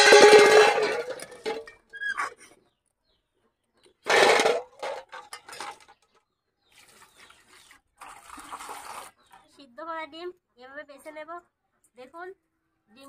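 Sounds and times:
eggs clattering into steel bowl: 0.0 - 1.8, 4.0 - 6.0
water pouring into bowl: 8.0 - 9.3.

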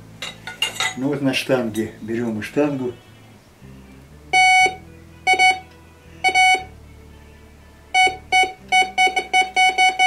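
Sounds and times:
metal detector beeping: 6.2 - 6.7, 8.0 - 10.0.

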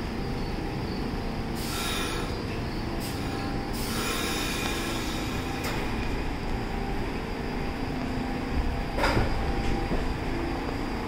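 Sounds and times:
subway train low rumble: 0.0 - 11.0
train air hiss: 1.5 - 6.0.

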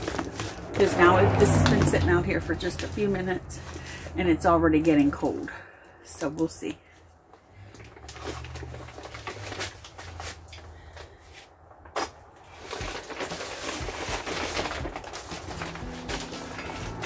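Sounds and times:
plastic tarp crinkling: 0.0 - 4.1, 7.5 - 11.2, 11.9 - 17.0.

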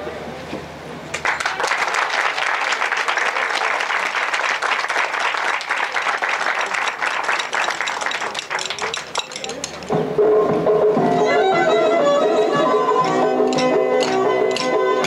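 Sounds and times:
audience applauding: 1.1 - 9.3.

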